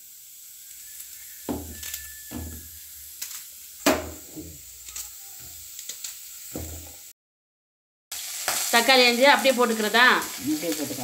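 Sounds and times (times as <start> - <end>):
steady hiss: 0.0 - 7.1
onion pieces knocking on a pan: 1.4 - 2.8, 3.8 - 4.6, 6.5 - 7.0.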